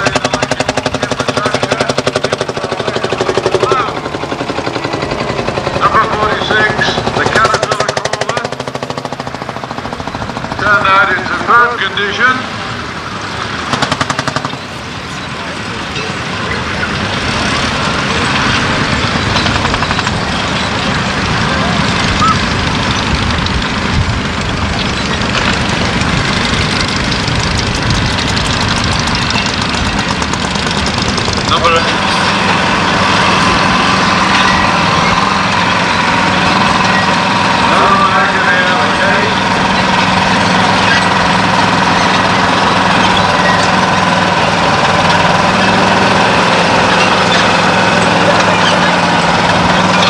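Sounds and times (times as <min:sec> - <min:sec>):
tractor engine driving past: 0:00.0 - 0:50.0.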